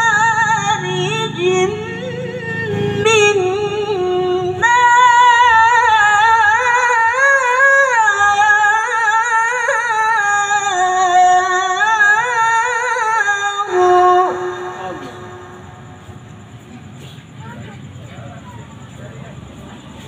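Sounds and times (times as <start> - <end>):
woman chanting melodically into microphone: 0.0 - 15.7.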